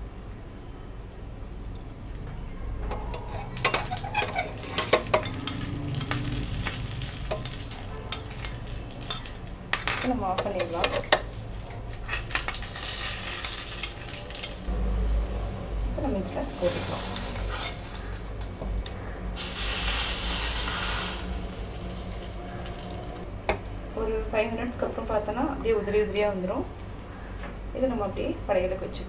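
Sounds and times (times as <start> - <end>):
metal spoon scraping a pan: 2.8 - 14.0, 16.4 - 18.3, 19.4 - 23.2
nuts sizzling in oil: 3.4 - 14.7, 16.1 - 18.4, 19.4 - 23.3.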